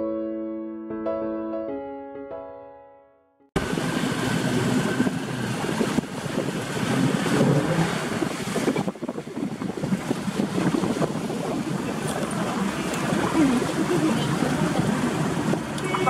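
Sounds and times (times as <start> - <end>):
wind buffeting microphone: 3.6 - 15.8
outboard motor running: 3.6 - 16.0
water rushing past hull: 3.6 - 16.0.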